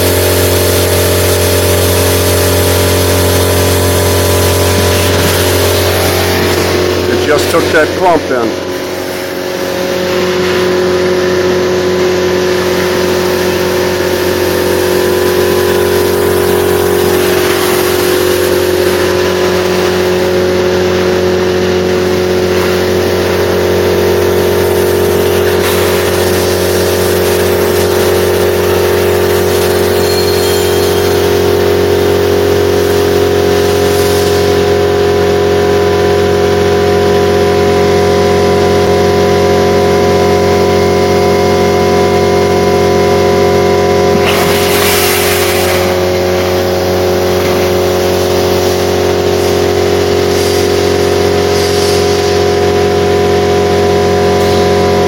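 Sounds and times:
industrial vacuum loader drone: 0:00.0 - 0:55.0
air rushing through hose: 0:08.6 - 0:11.0.

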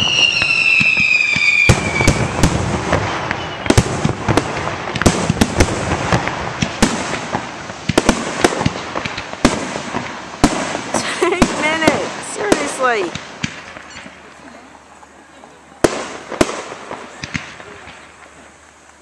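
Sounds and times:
firework whistle falling in pitch: 0:00.0 - 0:02.4, 0:03.0 - 0:03.8
fireworks bangs and pops: 0:00.0 - 0:19.0.

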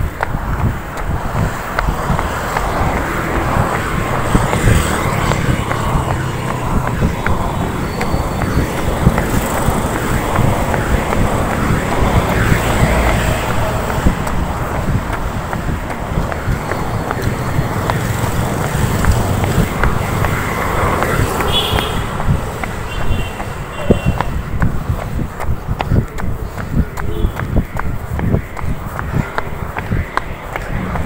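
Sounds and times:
road traffic passing: 0:00.0 - 0:31.0
wind rumbling on microphone: 0:00.0 - 0:31.0.

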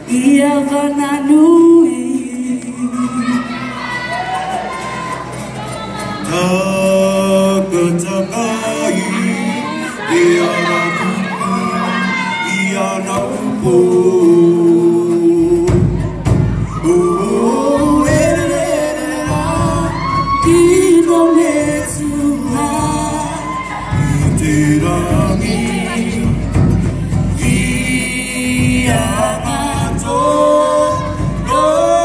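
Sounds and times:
group singing: 0:00.0 - 0:32.0
low drumming: 0:08.8 - 0:32.0.

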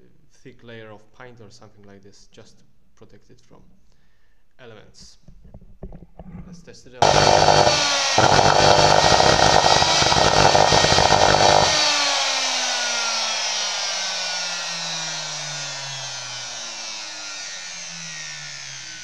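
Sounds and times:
circular saw motor whining: 0:07.0 - 0:19.0.

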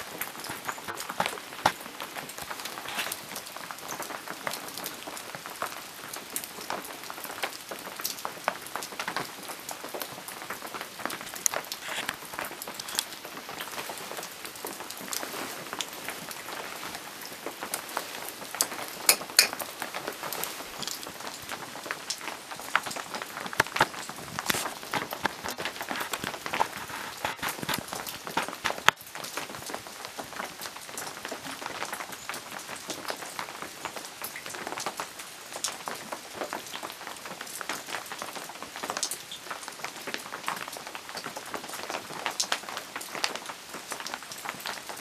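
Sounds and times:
steady rain falling: 0:00.0 - 0:45.0.

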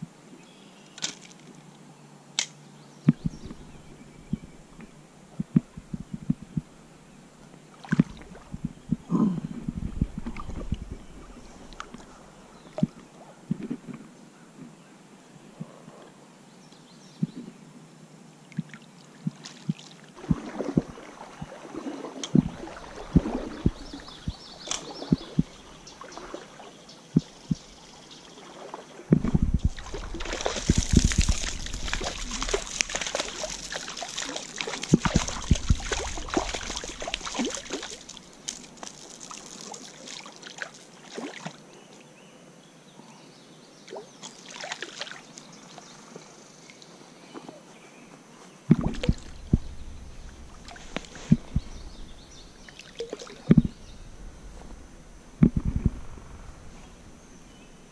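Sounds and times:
stream water trickling: 0:03.1 - 0:08.9, 0:18.4 - 0:42.2, 0:43.8 - 0:46.9, 0:48.7 - 0:57.9.

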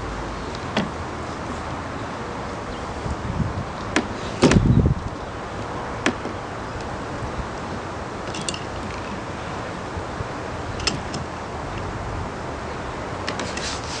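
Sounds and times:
rudder fittings clicking: 0:08.2 - 0:09.2, 0:10.8 - 0:11.3.

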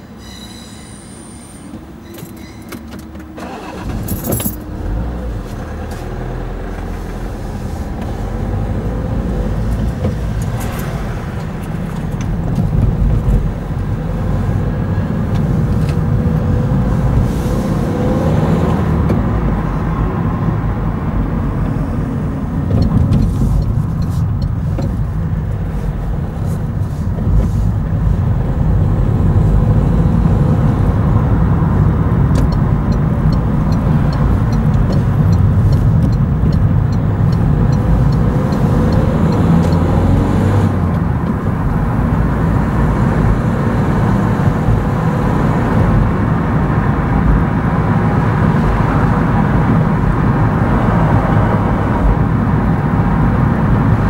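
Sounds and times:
tyre and engine rumble: 0:00.0 - 0:54.0
light regular ticking: 0:32.4 - 0:39.8.

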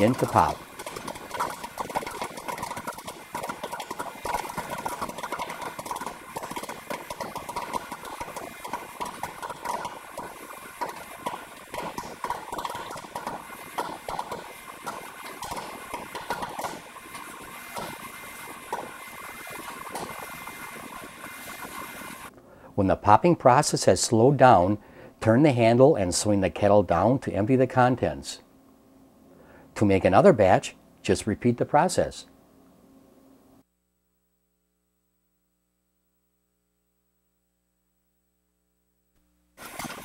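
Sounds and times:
popcorn popping: 0:00.0 - 0:22.3, 0:39.6 - 0:40.0.

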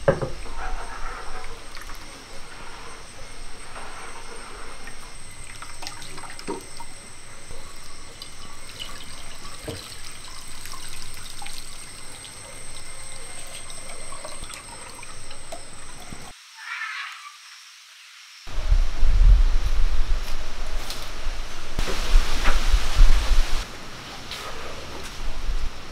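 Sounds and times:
small knocks: 0:00.0 - 0:00.5
liquid trickling and dripping: 0:00.4 - 0:16.3.

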